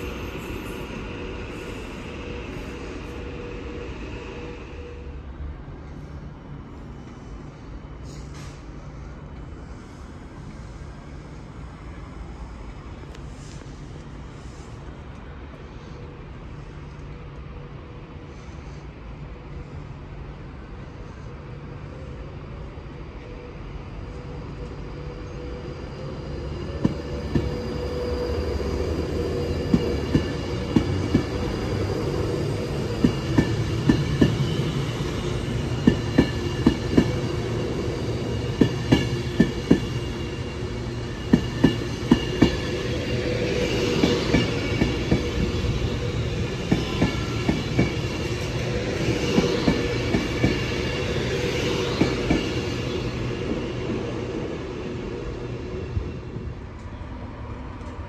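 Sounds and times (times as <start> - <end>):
train hum and high whine: 0.0 - 58.0
train wheels clicking over rail joints: 29.1 - 54.1.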